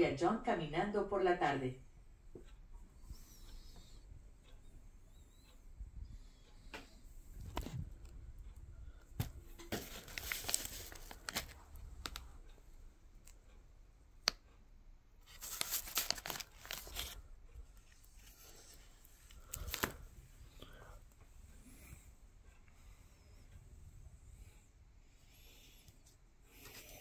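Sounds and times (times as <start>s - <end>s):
plastic sleeves crinkling: 9.6s - 12.3s, 15.2s - 17.2s, 17.9s - 20.0s.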